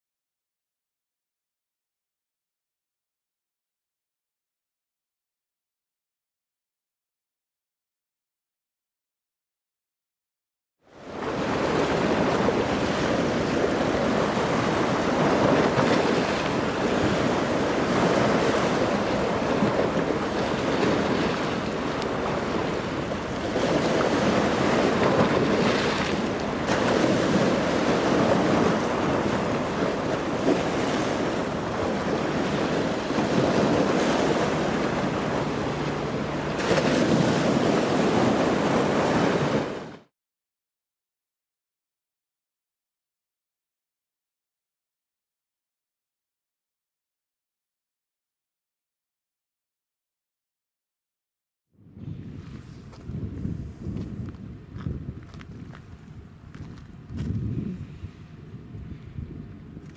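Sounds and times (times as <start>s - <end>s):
waves washing: 10.9s - 40.1s
wind buffeting microphone: 11.1s - 39.9s, 51.8s - 59.9s.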